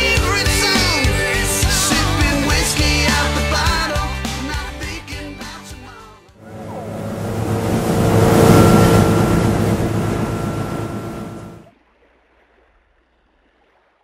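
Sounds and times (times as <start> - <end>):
motorboat engine hum: 6.4 - 11.7.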